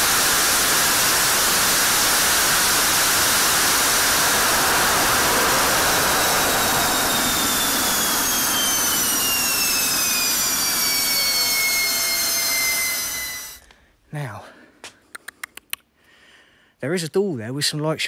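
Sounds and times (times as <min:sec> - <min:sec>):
jet engine roaring on afterburner: 0:00.0 - 0:13.7
jet engine whine falling in pitch: 0:00.0 - 0:13.7.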